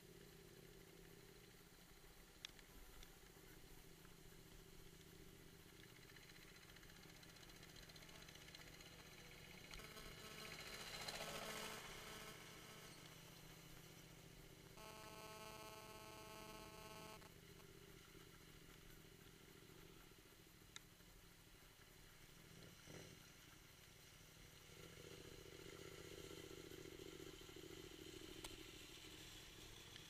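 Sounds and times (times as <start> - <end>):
motorcycle engine running: 3.2 - 20.4, 24.3 - 30.0.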